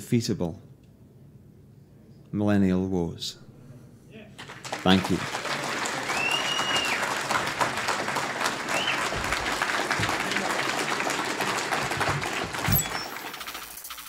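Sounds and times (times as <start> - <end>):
audience applauding: 4.4 - 13.8.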